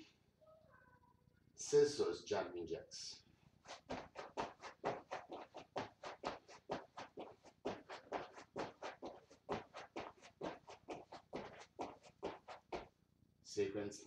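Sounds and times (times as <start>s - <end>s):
feet landing on foam mat: 3.7s - 12.9s.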